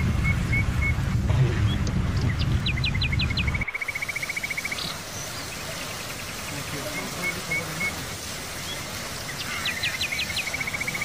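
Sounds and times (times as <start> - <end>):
low rumble: 0.0 - 3.7
birds chirping and trilling: 0.0 - 11.0
steady rain: 0.0 - 11.0.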